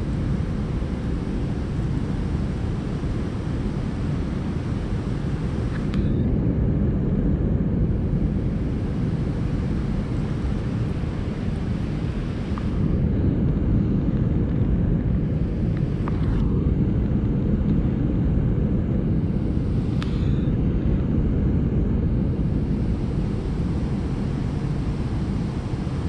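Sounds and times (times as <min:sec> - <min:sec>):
wind buffeting microphone: 0:00.0 - 0:26.0
faint tick: 0:05.7 - 0:06.1, 0:20.0 - 0:20.2.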